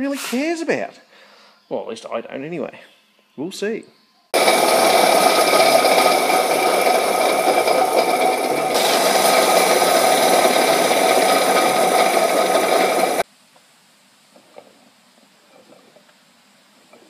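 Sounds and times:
blower spinning mechanical noise: 4.4 - 13.2.

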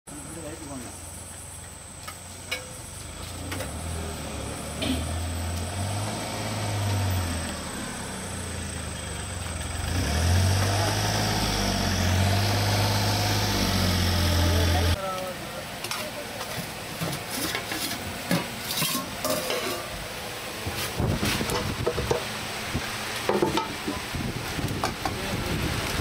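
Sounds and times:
steady hiss: 0.1 - 10.0
engine drone: 0.1 - 16.8.

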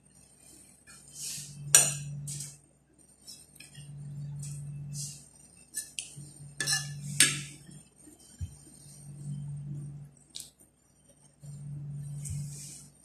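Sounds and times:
fork clinking on ceramic plates: 6.6 - 7.6.

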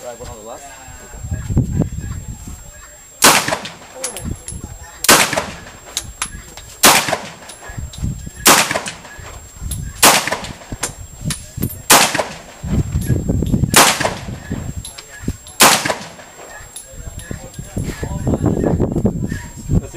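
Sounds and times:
pistol shots: 3.2 - 4.2, 5.0 - 6.0, 6.8 - 7.7, 8.4 - 9.2, 10.0 - 11.0, 11.9 - 12.6, 13.7 - 14.6, 15.5 - 16.6.

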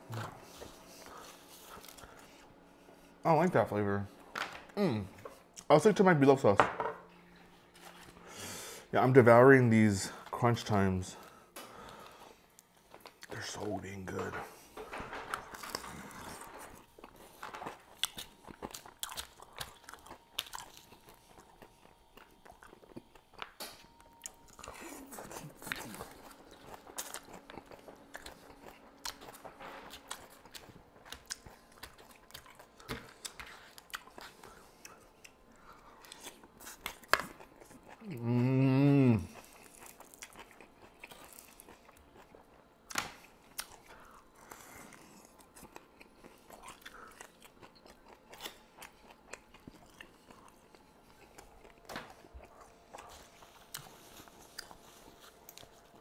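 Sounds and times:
biting and chewing crunchy food: 11.2 - 38.3, 39.2 - 56.0.

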